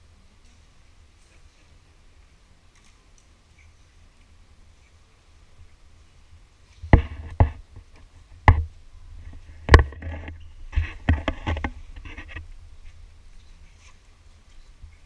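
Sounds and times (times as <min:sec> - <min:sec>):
clicks and scrapes: 0:06.8 - 0:14.6
camera handling rubbing: 0:09.6 - 0:13.0.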